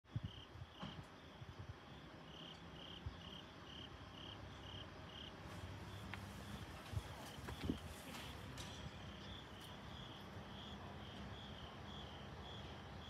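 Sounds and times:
faint cricket chirping: 0.1s - 13.0s.

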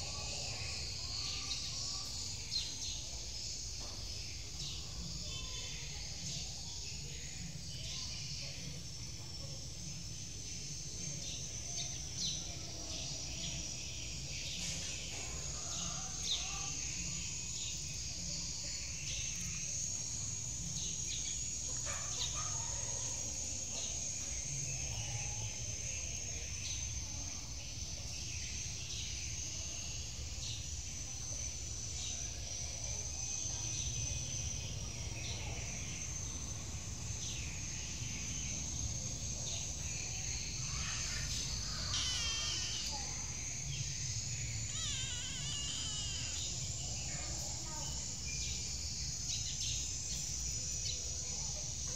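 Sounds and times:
high-pitched insect chorus: 0.0s - 51.9s
bird chirps: 40.7s - 48.7s.

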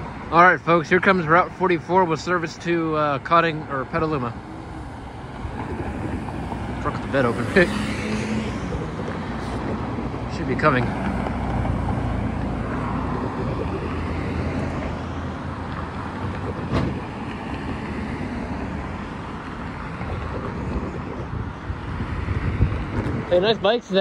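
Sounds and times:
traffic rumble: 0.0s - 24.0s
pickup truck driving past: 3.9s - 21.4s.

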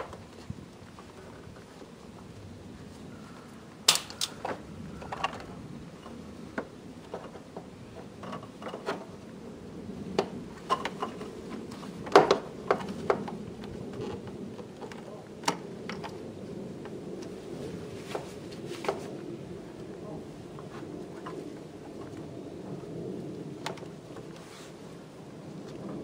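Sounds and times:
clicks and knocks of plastic and metal: 3.9s - 9.2s, 10.1s - 16.2s.

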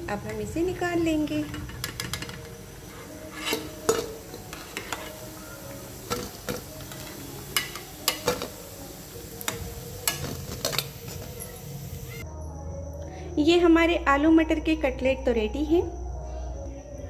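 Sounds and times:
oil sizzling: 0.0s - 12.2s
metal spoon clinking on pan: 3.4s - 5.2s, 6.1s - 8.6s, 9.4s - 11.6s.

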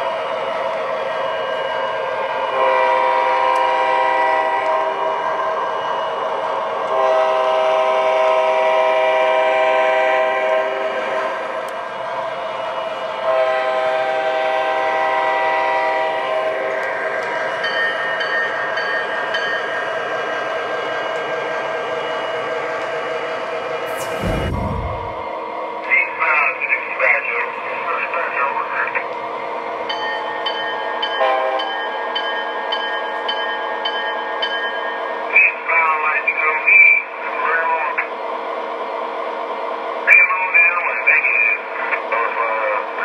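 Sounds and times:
model train running on track: 0.0s - 23.9s, 25.5s - 43.0s
model train electronic horn: 2.5s - 5.2s, 6.9s - 11.0s, 13.2s - 16.8s, 31.2s - 31.7s.

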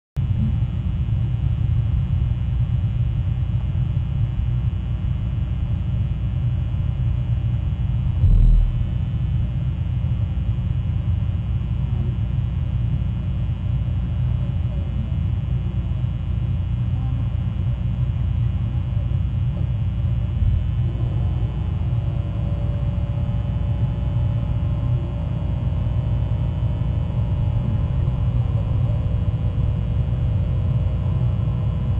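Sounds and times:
low rumble: 0.2s - 11.4s, 20.1s - 31.9s
thump: 8.2s - 8.9s.

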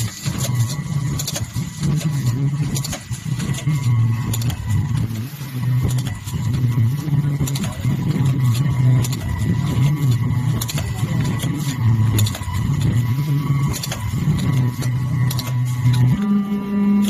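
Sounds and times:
machine parts clicking and clacking: 0.0s - 16.3s
packaging machine humming: 0.0s - 17.0s.

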